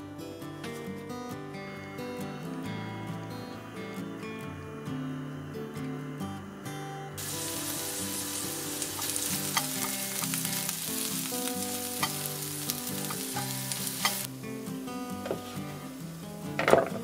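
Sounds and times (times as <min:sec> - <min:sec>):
vegetables sizzling in a frying pan: 0:07.2 - 0:17.0.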